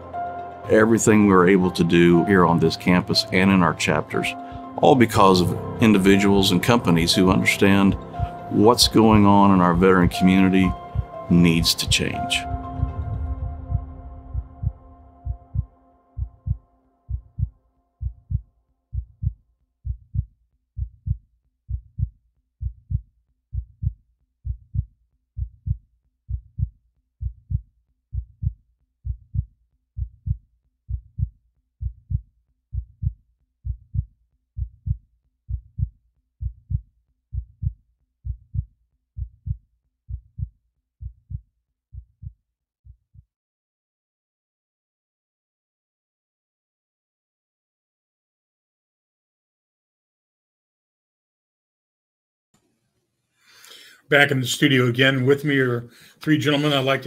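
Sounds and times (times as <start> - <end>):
music: 0.0 - 18.0
heartbeat thumps: 7.1 - 43.2.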